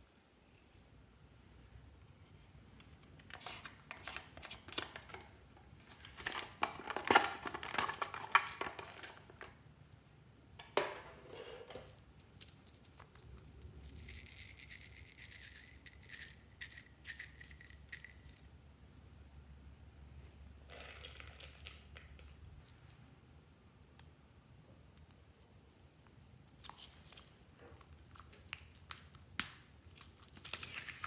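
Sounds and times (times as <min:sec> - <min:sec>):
hands handling plastic objects: 0:02.7 - 0:18.5, 0:26.4 - 0:31.0
plastic beads pouring rattle: 0:12.3 - 0:18.5.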